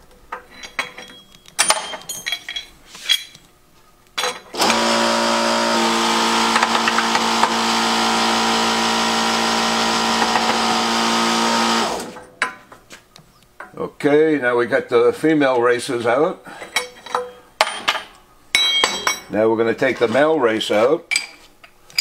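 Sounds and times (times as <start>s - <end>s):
metal tools clinking: 0.3s - 3.5s, 16.6s - 19.3s, 21.1s - 21.4s
hydraulic pump motor humming: 4.5s - 12.2s.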